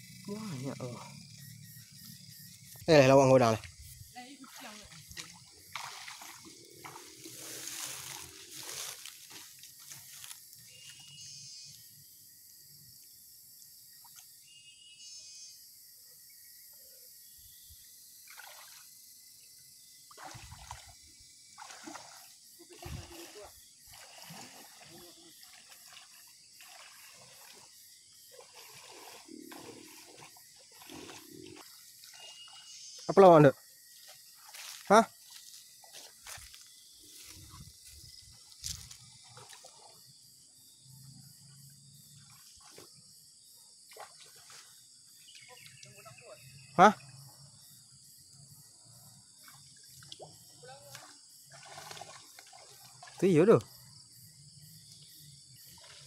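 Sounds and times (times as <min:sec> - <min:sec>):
splashing in muddy water: 0:02.6 - 0:11.0, 0:18.2 - 0:19.0, 0:20.0 - 0:32.8, 0:34.0 - 0:40.1, 0:42.1 - 0:43.1, 0:43.8 - 0:46.3, 0:49.3 - 0:53.8, 0:55.6 - 0:56.0.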